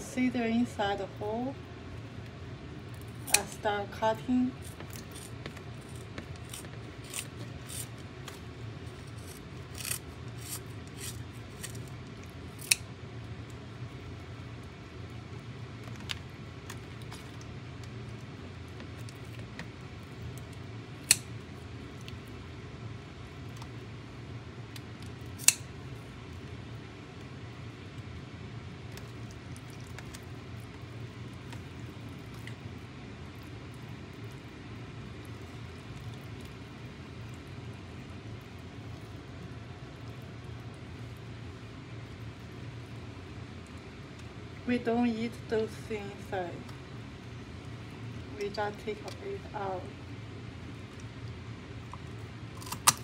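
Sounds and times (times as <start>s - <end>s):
steady low hum: 0.0s - 53.0s
scissors snipping fish: 4.6s - 8.4s, 9.1s - 11.8s, 12.6s - 12.8s, 25.4s - 25.6s
scissors sharp snap: 25.4s - 25.6s.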